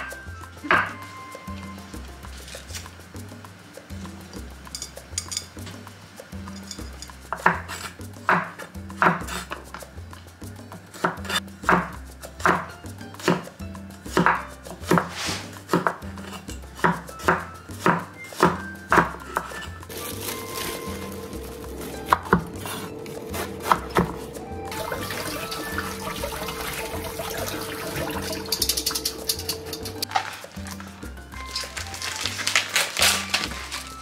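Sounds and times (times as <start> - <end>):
soft background music: 0.0 - 34.0
knife striking cutting board: 11.0 - 13.4, 14.1 - 30.2.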